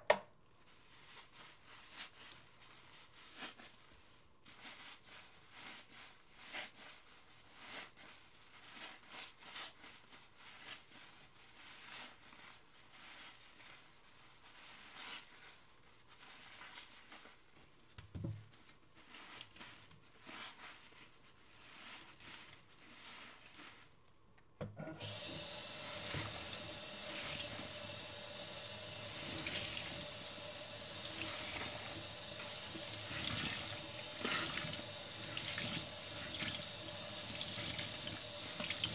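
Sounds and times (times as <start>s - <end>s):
tap water running into sink: 24.9s - 38.9s
wet sponge squelching: 25.0s - 38.9s.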